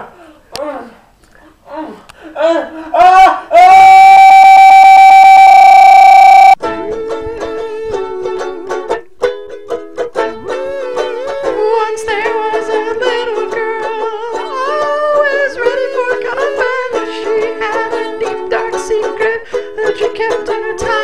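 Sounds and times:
person singing: 1.7 - 9.0, 10.2 - 21.0
plucked string accompaniment: 6.6 - 21.0.

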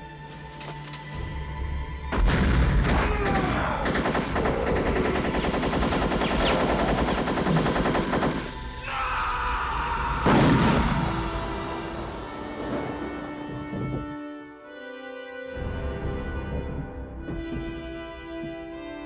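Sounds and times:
orchestral music: 0.0 - 19.0
submachine gun automatic fire: 3.8 - 8.6.

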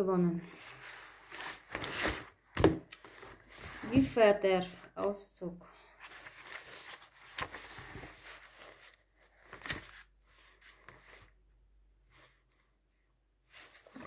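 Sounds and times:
book pages rustling: 0.5 - 4.2, 5.9 - 12.8, 13.4 - 14.0.

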